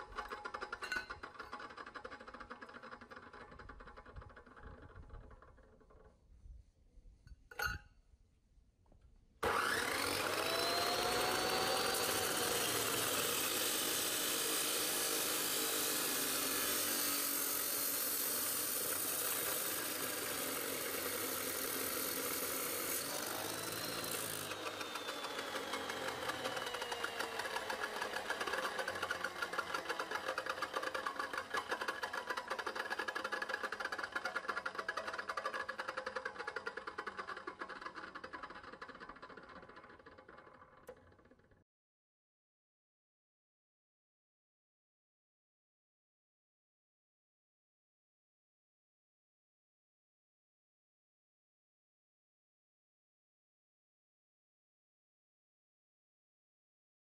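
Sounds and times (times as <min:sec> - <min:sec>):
cut-off saw grinding steel: 0:09.4 - 0:40.3.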